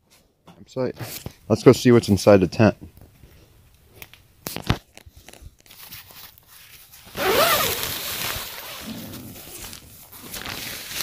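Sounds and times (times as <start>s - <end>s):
tent zipper pulled open: 7.1s - 11.0s.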